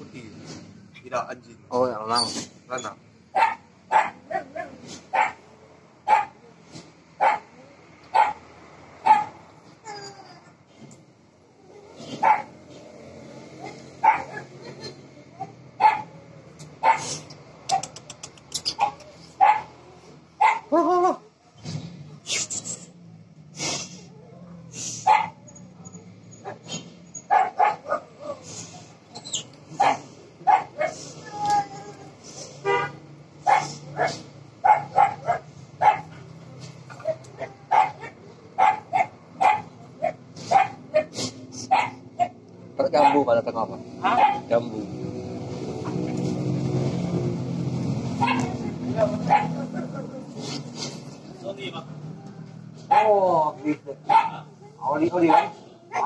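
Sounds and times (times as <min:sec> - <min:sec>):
dog barking: 0:03.3 - 0:05.4, 0:06.0 - 0:06.4, 0:07.2 - 0:09.4, 0:12.1 - 0:12.6, 0:13.6 - 0:14.6, 0:15.8 - 0:16.2, 0:16.8 - 0:18.0, 0:18.7 - 0:19.8, 0:20.4 - 0:20.9, 0:25.0 - 0:25.4, 0:26.4 - 0:28.4, 0:29.8 - 0:31.0, 0:32.7 - 0:36.2, 0:36.9 - 0:43.3, 0:44.0 - 0:44.6, 0:48.2 - 0:50.0, 0:52.9 - 0:53.2, 0:54.1 - 0:54.5, 0:55.2 - 0:56.0.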